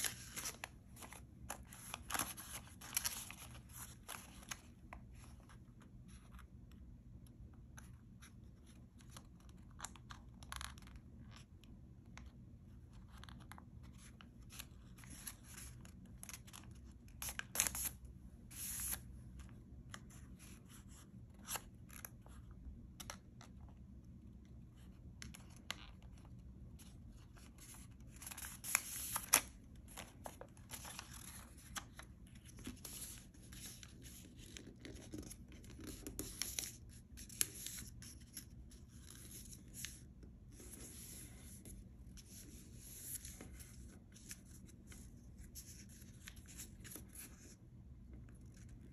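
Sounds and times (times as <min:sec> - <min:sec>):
paper rustling and crinkling: 0:00.0 - 0:06.4, 0:24.8 - 0:47.6.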